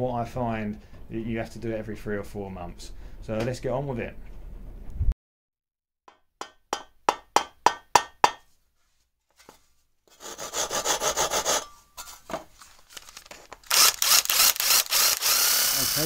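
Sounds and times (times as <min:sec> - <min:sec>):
rhythmic rasping sawing strokes: 0:10.1 - 0:11.8.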